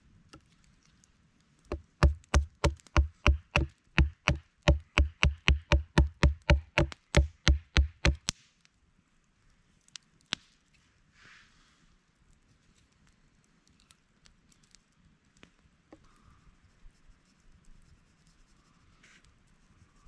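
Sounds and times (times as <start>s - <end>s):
axe chopping wood: 1.7s - 8.3s.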